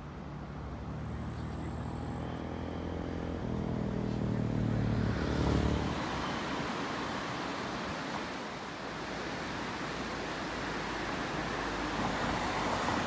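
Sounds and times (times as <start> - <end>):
vehicle engine running: 0.4 - 4.8.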